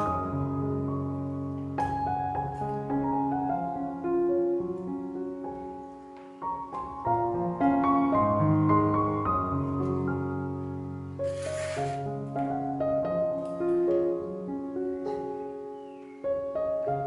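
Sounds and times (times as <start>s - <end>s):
solo piano piece: 0.0s - 17.0s.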